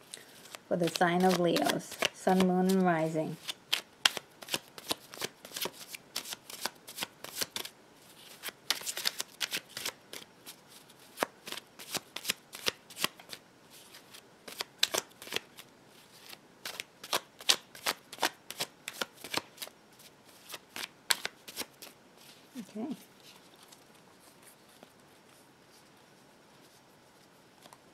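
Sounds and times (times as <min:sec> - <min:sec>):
cards being shuffled: 0:00.1 - 0:26.0.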